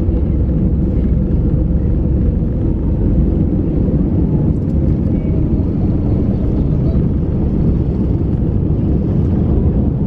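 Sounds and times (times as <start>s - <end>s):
faint steady drone: 0.0s - 10.0s
jet engines at takeoff thrust: 0.0s - 10.0s
wheels rumbling on runway: 0.0s - 10.0s.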